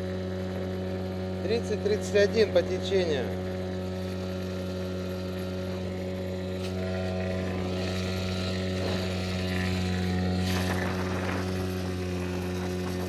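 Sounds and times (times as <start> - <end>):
outboard motor droning: 0.0 - 13.0.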